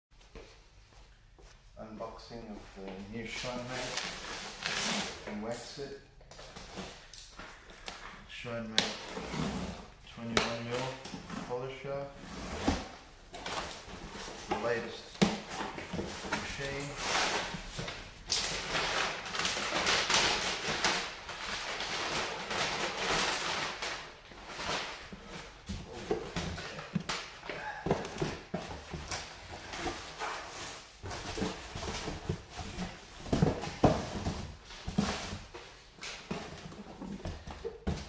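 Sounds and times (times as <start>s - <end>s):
packing paper rustling: 12.7s - 38.0s
cardboard boxes handled: 27.7s - 38.0s.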